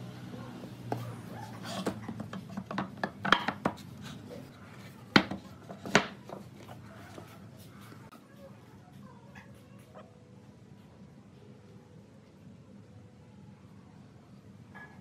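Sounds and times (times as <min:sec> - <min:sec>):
wooden beams knocking and scraping: 0:01.8 - 0:03.8.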